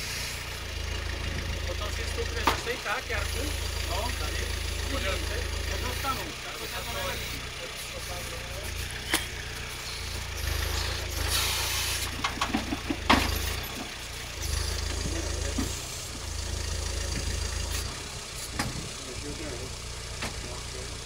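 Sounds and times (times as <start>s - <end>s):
small tractor engine running: 0.0s - 21.0s
knocks and clunks: 1.2s - 2.9s, 12.0s - 15.9s, 17.0s - 17.7s, 18.5s - 18.9s, 20.2s - 20.6s.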